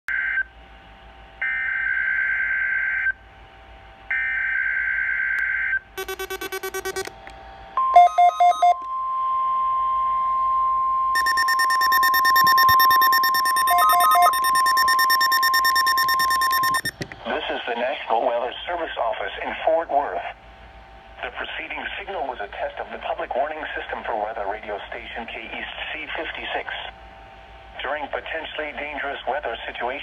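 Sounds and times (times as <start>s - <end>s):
screeching digital header bursts: 6.0s - 7.0s, 11.2s - 16.9s
electronic alert beeps: 6.0s - 7.1s, 7.8s - 8.8s, 11.2s - 17.0s
steady warning alarm tone: 6.0s - 7.1s, 7.8s - 8.8s, 11.2s - 17.0s.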